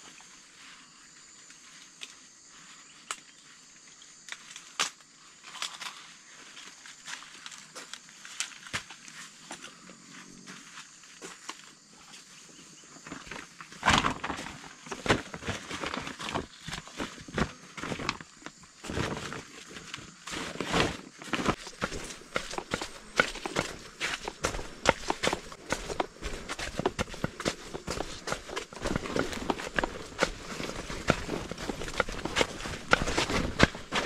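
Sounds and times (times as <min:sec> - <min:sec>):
stalks snapping and crunching: 0:04.2 - 0:05.9, 0:20.3 - 0:34.0.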